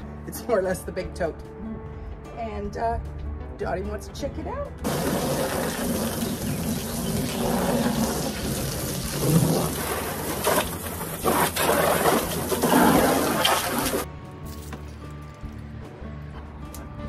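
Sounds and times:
hose spray splattering on plastic: 4.8 - 14.8.

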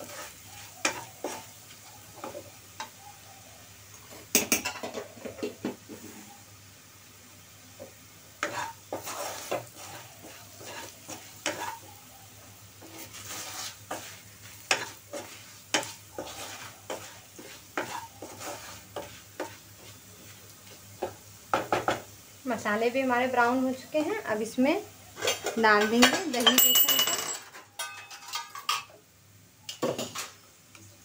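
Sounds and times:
wooden spatula scraping a pan: 0.0 - 3.0, 7.8 - 22.1, 23.0 - 26.4
soft sizzle of frying: 0.0 - 31.0.

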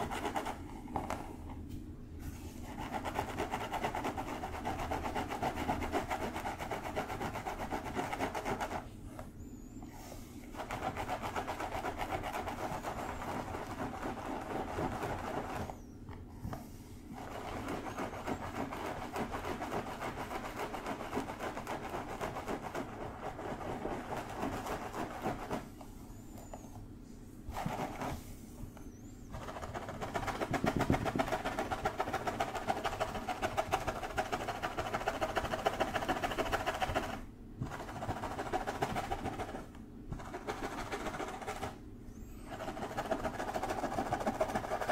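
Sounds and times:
fingertips scratching through hair: 10.4 - 15.8, 29.3 - 41.8, 42.4 - 44.9.

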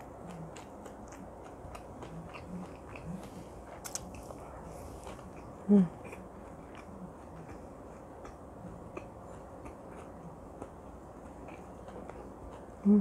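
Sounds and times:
quiet chewing mouth clicks: 0.2 - 4.4.

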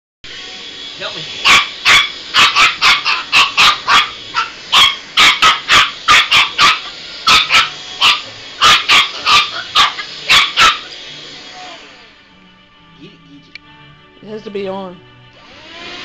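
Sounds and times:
puppy yipping: 1.4 - 10.9.

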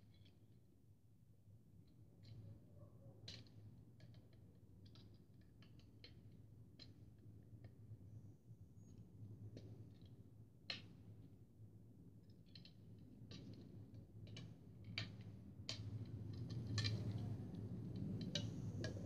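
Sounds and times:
light clicks and taps: 12.2 - 19.0.

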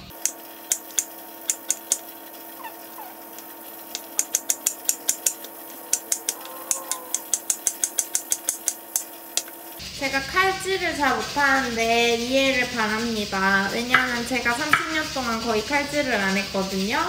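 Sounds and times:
knife chopping onion on wood: 13.9 - 15.1.

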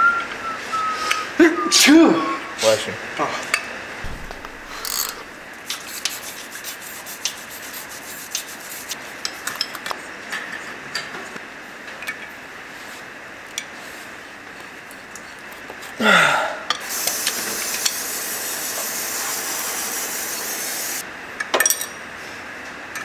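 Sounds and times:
hand tools clicking on metal: 4.3 - 5.8.

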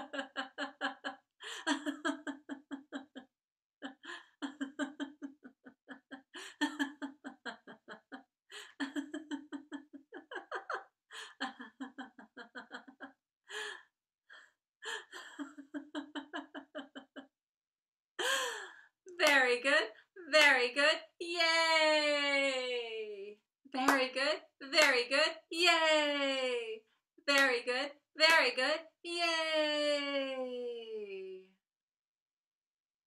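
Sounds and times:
woman laughing heartily: 0.0 - 13.8, 14.8 - 17.3
woman gasping for breath: 18.2 - 18.9.

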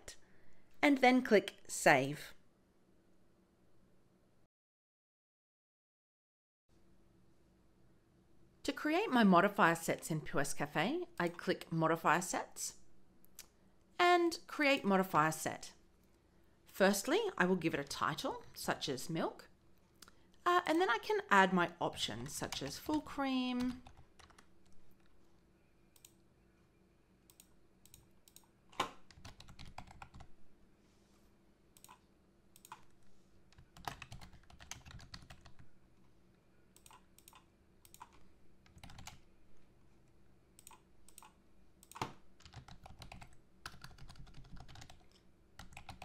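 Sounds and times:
computer keyboard typing: 22.2 - 24.8, 27.3 - 30.3, 32.6 - 32.9, 33.5 - 35.7, 36.8 - 39.3, 40.6 - 46.0.

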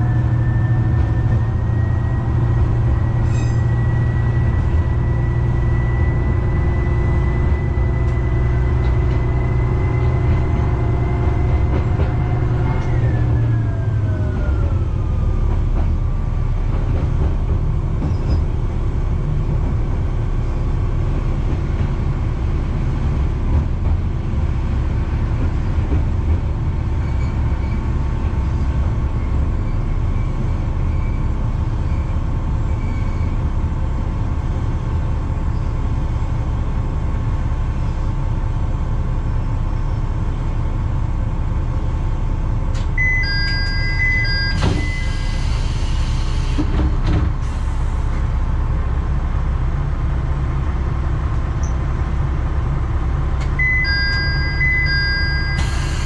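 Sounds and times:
railcar diesel engine rumbling: 0.0 - 56.0
two-tone electronic beep: 43.0 - 45.1, 53.6 - 55.7.

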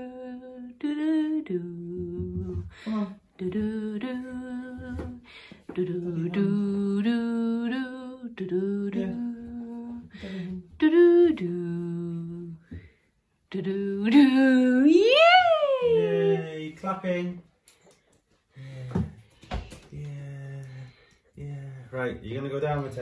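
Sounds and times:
person humming a slow tune: 0.0 - 5.2, 5.8 - 12.6.

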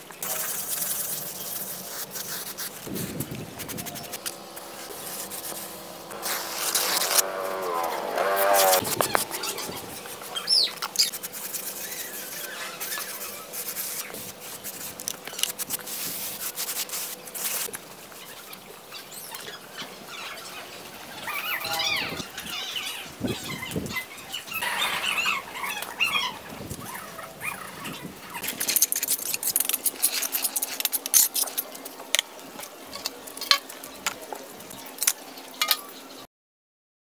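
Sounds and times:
float scraping wet mortar: 0.2 - 17.7
birds chirping: 3.5 - 14.2, 18.1 - 28.6.

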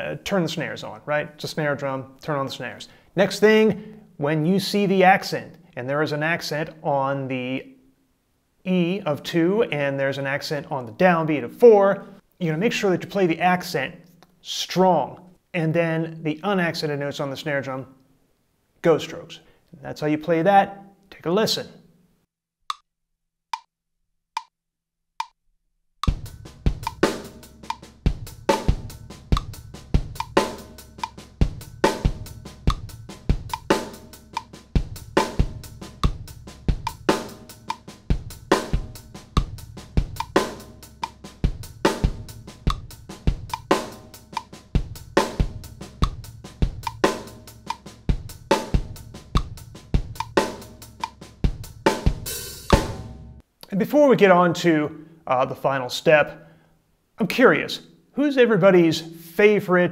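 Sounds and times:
drum kit groove: 26.0 - 53.4
metronome clicking: 26.8 - 27.9, 29.3 - 29.6, 30.2 - 31.2, 32.7 - 32.9, 33.5 - 34.6, 40.2 - 40.4, 41.0 - 41.2, 42.7 - 42.9, 43.5 - 44.6, 46.8 - 47.9, 49.4 - 49.6, 50.2 - 51.2, 52.6 - 52.8.

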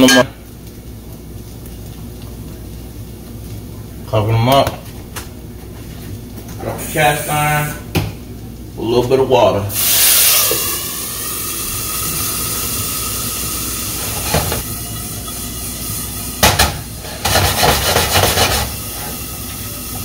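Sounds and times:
water sizzling in hot skillet: 0.1 - 20.0
knock on skillet lid: 16.4 - 18.6.

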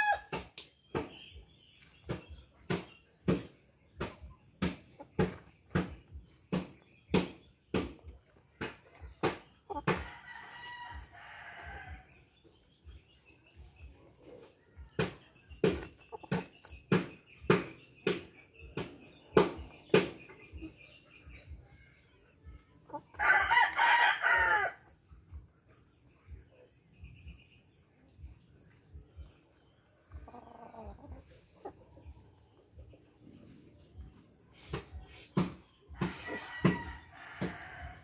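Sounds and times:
rooster crowing: 0.0 - 0.2, 23.2 - 24.8
chickens clucking: 0.0 - 38.0.

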